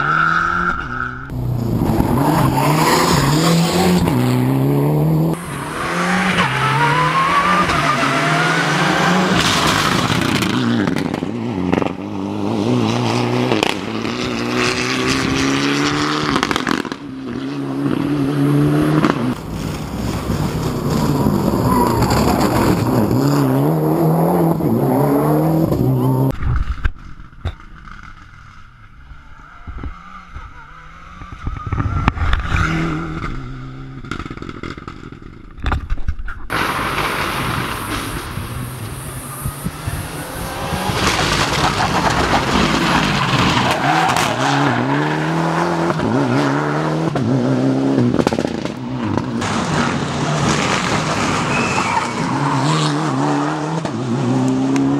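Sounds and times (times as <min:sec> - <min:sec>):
rally car engine revving: 0:00.0 - 0:26.3, 0:36.5 - 0:54.9.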